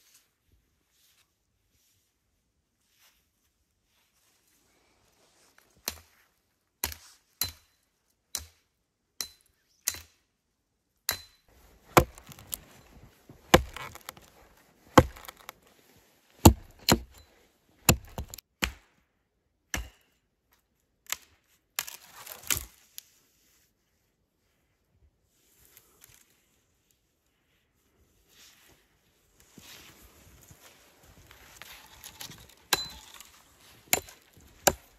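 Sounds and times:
hatchet chopping tree trunk: 0:06.8 - 0:07.7, 0:11.1 - 0:15.6, 0:16.4 - 0:18.9, 0:19.7 - 0:20.1, 0:31.8 - 0:33.3, 0:33.9 - 0:34.9
wood cracking: 0:11.6 - 0:15.7, 0:16.4 - 0:17.2, 0:17.8 - 0:18.4, 0:31.2 - 0:34.9.

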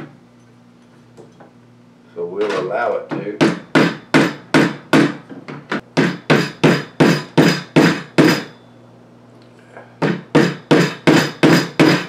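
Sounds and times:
hammer tapping metal punch: 0:02.4 - 0:08.6, 0:10.0 - 0:12.0.

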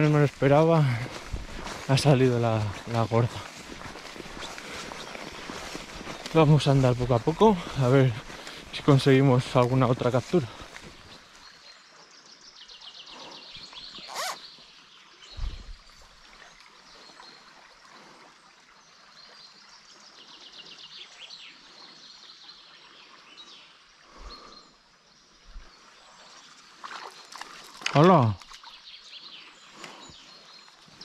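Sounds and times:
dull low thumps: 0:00.0 - 0:06.4, 0:15.4 - 0:15.8
river flowing gently: 0:00.0 - 0:31.0.

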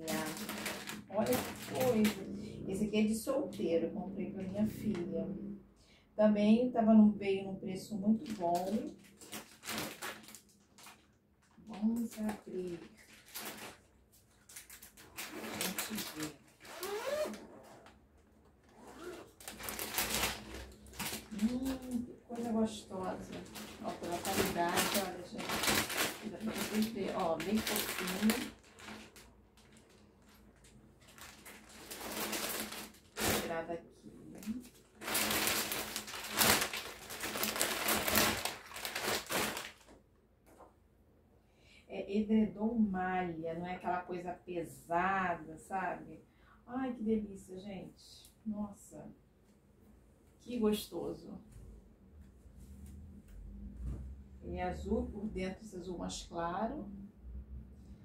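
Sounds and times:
plastic crinkling: 0:00.0 - 0:02.4, 0:07.9 - 0:40.7
zipper rasping: 0:15.2 - 0:18.0, 0:18.6 - 0:20.5.

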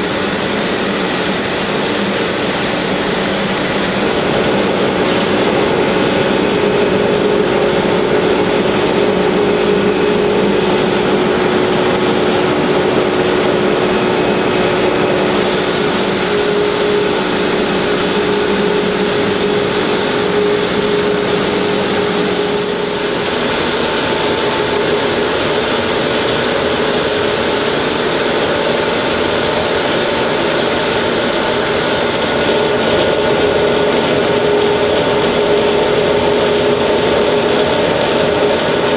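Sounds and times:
machinery humming: 0:00.0 - 0:38.9
high hiss: 0:15.4 - 0:20.7.

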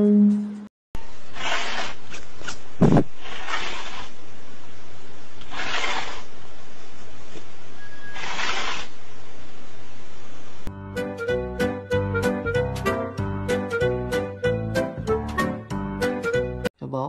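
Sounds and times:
cat hissing: 0:01.3 - 0:02.1, 0:03.2 - 0:04.2, 0:05.4 - 0:06.3, 0:08.1 - 0:09.0.

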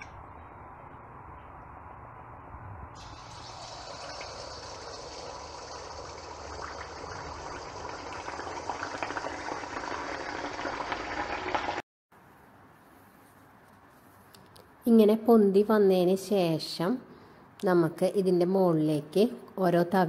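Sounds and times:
batter sizzling in hot oil: 0:03.0 - 0:11.8.

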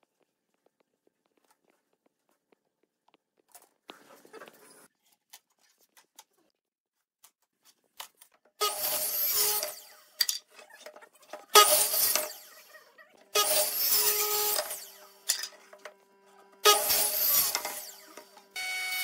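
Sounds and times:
miter saw cutting wood: 0:08.6 - 0:19.0.

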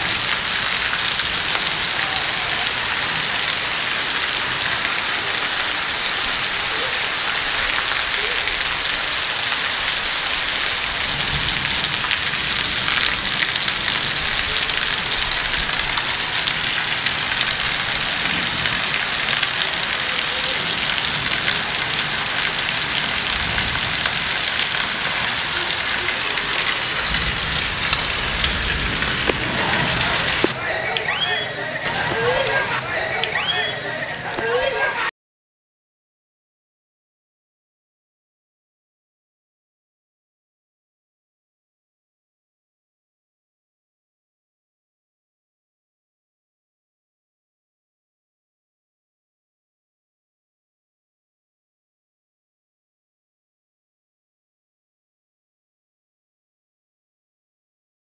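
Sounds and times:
rain on rooftops: 0:00.0 - 0:35.1.

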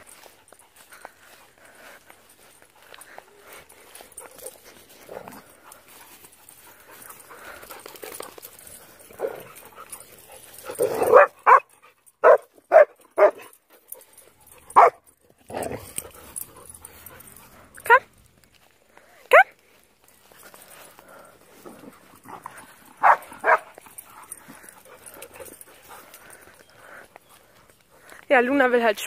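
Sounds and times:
dog barking: 0:10.9 - 0:13.4, 0:14.8 - 0:15.0, 0:23.0 - 0:23.7.

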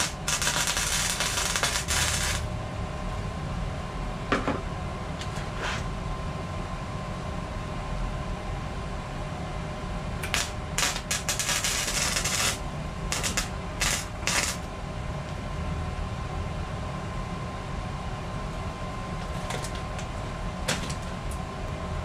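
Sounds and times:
welding arc crackling: 0:00.0 - 0:02.5, 0:10.2 - 0:14.7
steady hum: 0:00.0 - 0:22.0.

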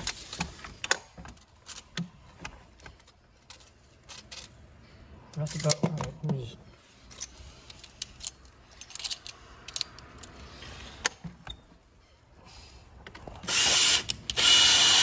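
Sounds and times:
cordless drill whining: 0:13.4 - 0:15.0.

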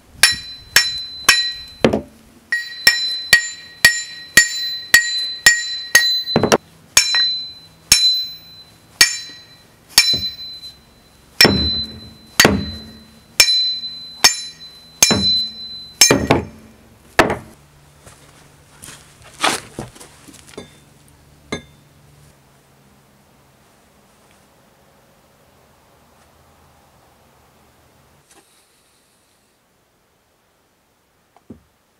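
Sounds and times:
axe head struck ringing: 0:00.2 - 0:17.6, 0:20.6 - 0:20.8, 0:21.5 - 0:21.8.

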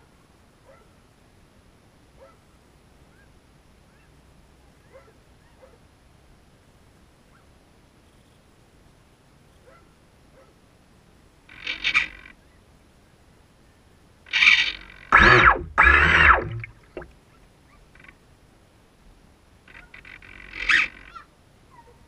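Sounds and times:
model boat motor revving: 0:14.3 - 0:17.0.

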